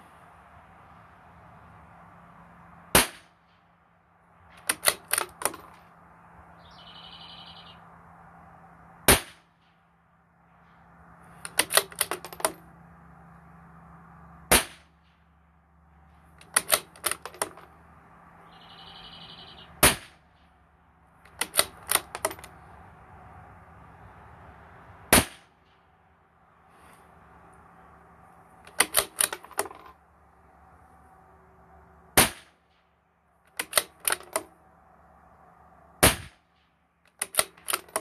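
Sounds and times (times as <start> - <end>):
metallic rifle bolt clicks: 4.6 - 5.8, 11.4 - 12.6, 16.4 - 17.7, 21.2 - 22.6, 28.6 - 30.0, 33.5 - 34.5, 37.1 - 38.0
rifle shots: 14.5 - 14.9, 19.8 - 20.2, 25.1 - 25.5, 32.2 - 32.6, 36.0 - 36.4.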